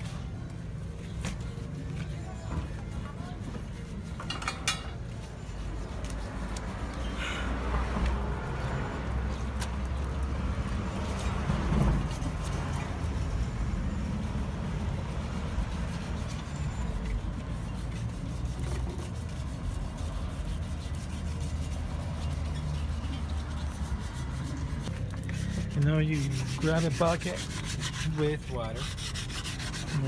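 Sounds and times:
low rumble of traffic: 0.0s - 30.0s
sandpaper scrubbing metal rim: 14.8s - 30.0s.

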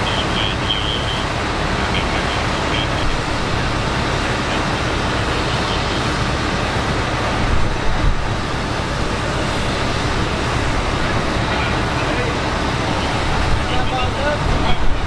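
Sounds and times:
fire truck diesel engines rumbling: 0.0s - 15.0s.

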